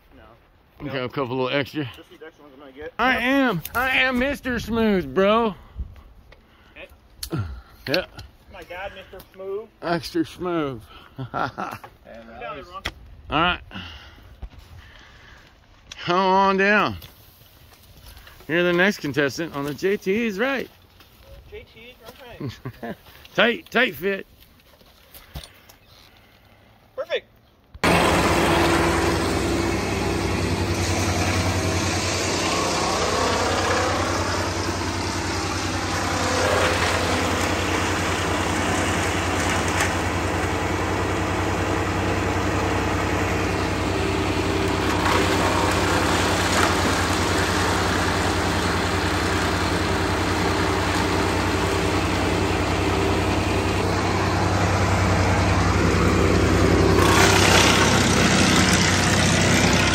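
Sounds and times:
wood chipper engine running: 3.0s - 5.7s, 17.8s - 24.1s, 27.8s - 59.9s
branches cracking in chipper: 27.8s - 59.9s.

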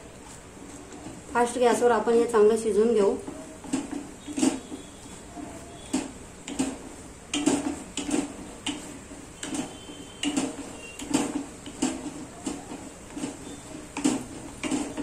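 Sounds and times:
spatula scraping saucepan: 3.3s - 15.0s.

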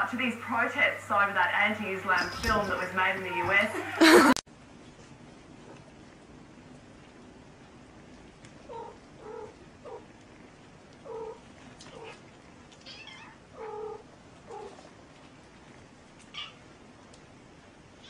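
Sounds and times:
cat meowing: 12.8s - 14.8s, 16.3s - 16.6s.

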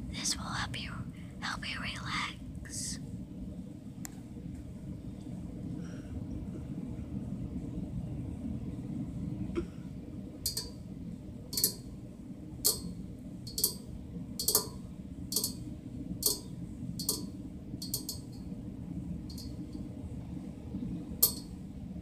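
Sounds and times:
steady low rumble: 0.0s - 22.0s
fingernails clicking: 11.6s - 11.8s, 13.5s - 13.8s, 14.4s - 15.6s.

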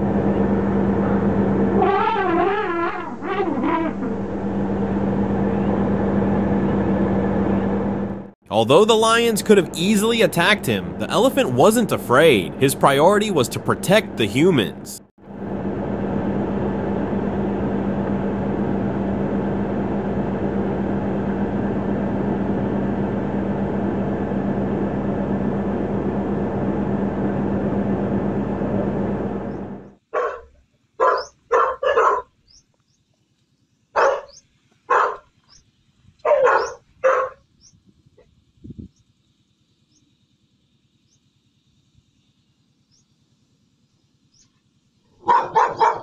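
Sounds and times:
dog barking: 30.1s - 32.3s, 34.0s - 35.3s, 36.2s - 37.4s, 45.2s - 46.0s.

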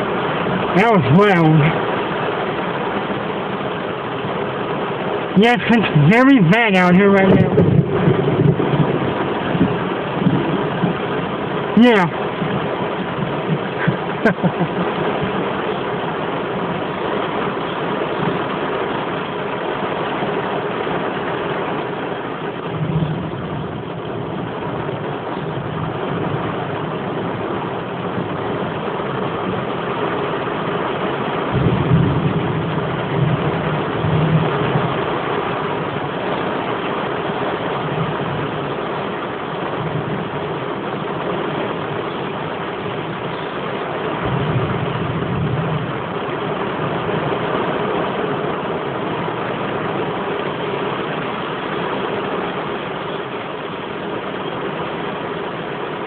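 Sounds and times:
thunder rumbling: 0.0s - 54.3s
heavy rain: 0.0s - 56.0s.

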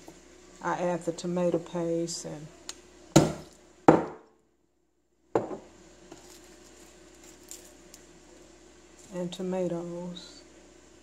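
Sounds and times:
glass bottle knocking on countertop: 3.2s - 4.2s, 5.4s - 5.7s
fingers rustling garlic skins: 6.1s - 9.5s.

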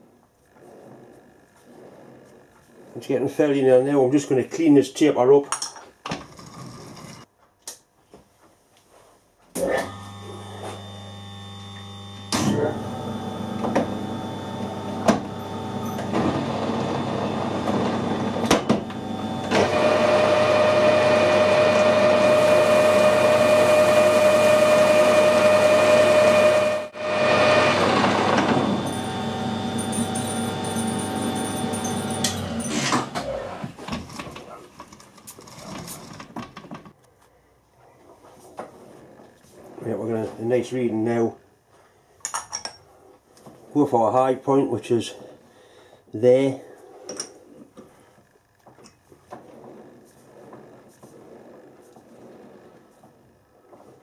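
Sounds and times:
metal lathe running: 9.8s - 32.8s.

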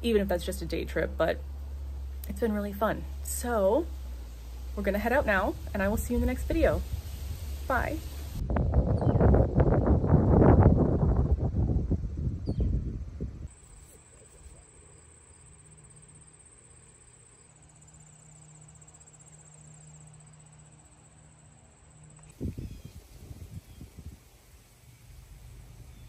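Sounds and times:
insects trilling: 0.2s - 8.4s, 13.5s - 26.0s
wind rumble on microphone: 4.8s - 14.6s, 22.3s - 24.6s.

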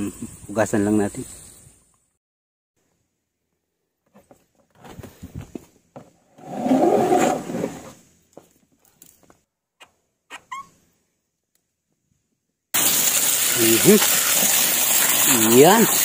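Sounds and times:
hose scraping rattle: 13.2s - 16.0s.

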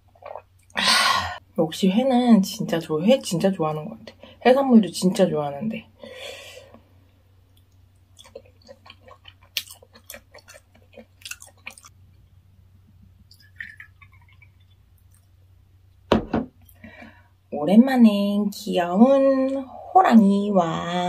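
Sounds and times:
wet chewing: 7.5s - 12.0s, 13.3s - 15.5s.

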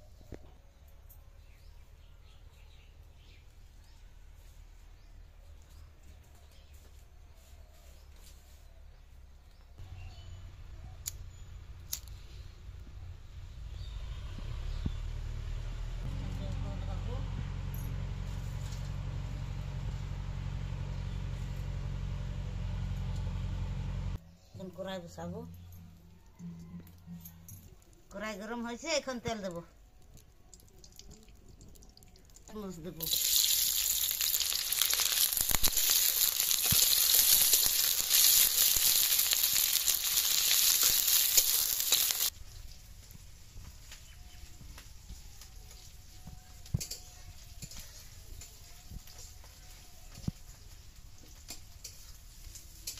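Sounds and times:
onions sizzling in hot oil: 33.0s - 42.3s.

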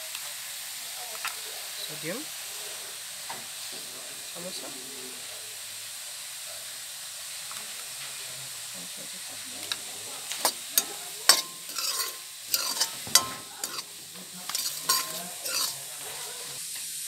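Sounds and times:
tripe sizzling in a wok: 0.0s - 17.0s
steel spoon scraping a wok: 9.6s - 16.6s.

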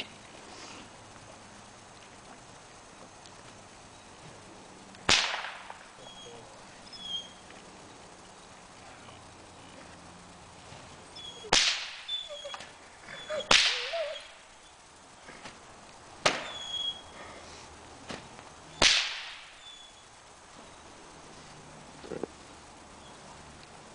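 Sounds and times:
whip cracking with echo: 5.1s - 5.9s, 11.4s - 12.1s, 13.4s - 14.4s, 16.2s - 16.5s, 18.8s - 19.6s.

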